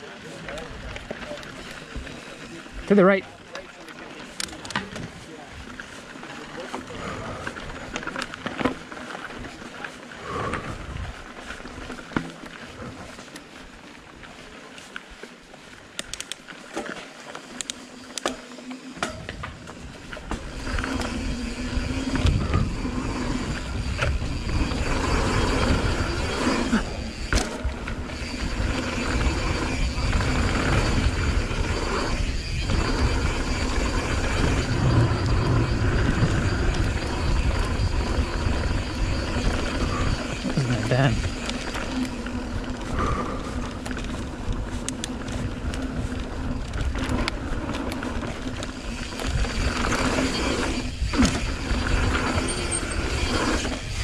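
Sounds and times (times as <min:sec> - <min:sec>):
bike clicks and rattles: 0:00.0 - 0:54.0
wind on microphone: 0:19.2 - 0:54.0.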